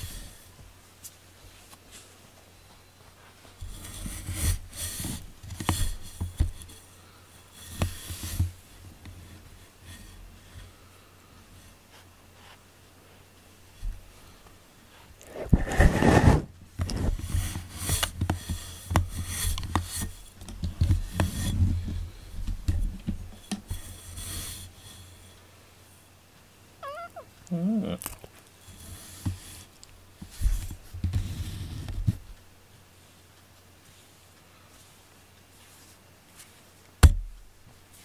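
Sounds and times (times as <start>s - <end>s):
cloth rustling against microphone: 14.9s - 20.2s
cat meowing: 26.8s - 28.0s.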